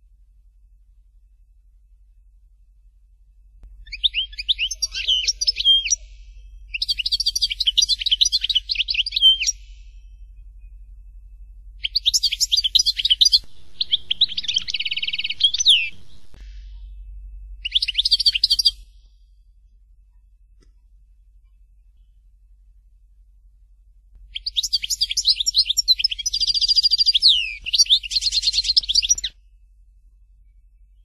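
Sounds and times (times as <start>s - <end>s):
buzzy bird trill: 3.8s - 19.2s, 24.3s - 29.4s.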